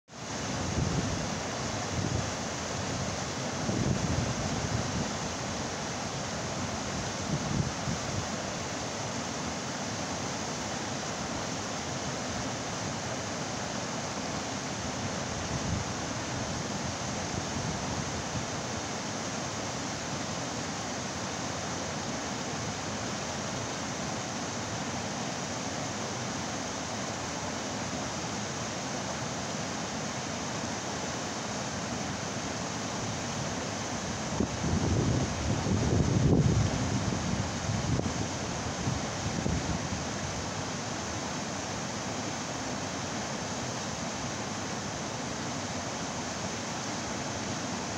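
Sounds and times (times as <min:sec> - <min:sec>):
river rapids rushing over rocks: 0:00.1 - 0:47.9.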